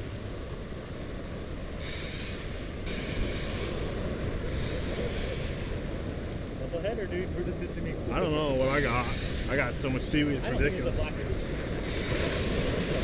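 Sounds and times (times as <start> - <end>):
wind rumble on microphone: 0.0 - 13.0
waves breaking against rocks: 2.7 - 13.0.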